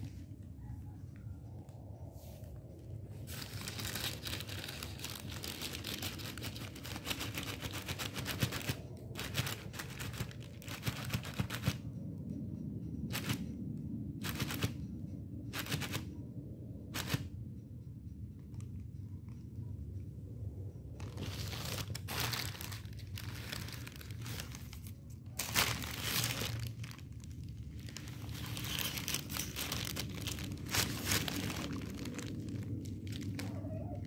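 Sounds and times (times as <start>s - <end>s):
steady low rumble: 0.0s - 34.0s
plastic bag crinkling: 3.3s - 11.6s, 21.0s - 34.0s.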